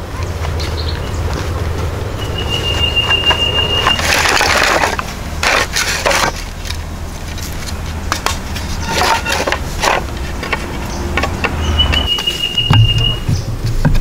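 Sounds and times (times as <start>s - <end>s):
rustling scrape of planks: 2.6s - 14.0s
wooden boards knocking: 8.1s - 14.0s.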